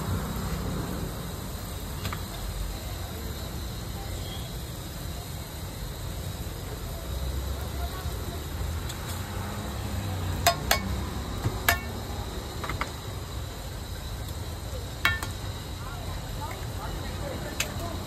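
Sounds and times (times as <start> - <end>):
metal utensils clinking on pan: 10.4 - 11.0, 11.6 - 12.0, 15.0 - 15.4.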